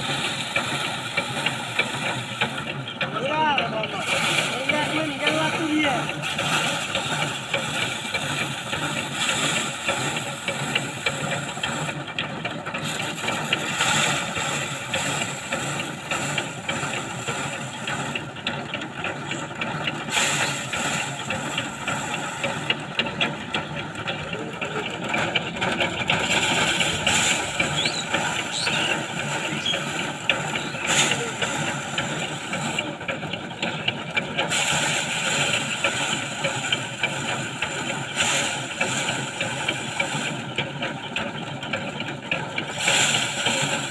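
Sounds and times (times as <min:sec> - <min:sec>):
thresher drum rattling: 0:00.0 - 0:43.9
grain and straw clattering: 0:04.0 - 0:11.9, 0:12.8 - 0:18.2, 0:20.0 - 0:24.2, 0:24.8 - 0:32.8, 0:34.5 - 0:40.3, 0:42.7 - 0:43.9.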